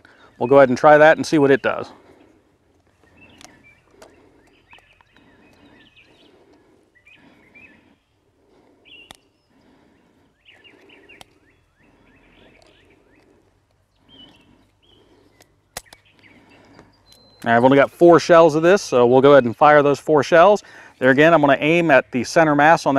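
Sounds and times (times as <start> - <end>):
faint bird chirps: 10.3 - 17.7.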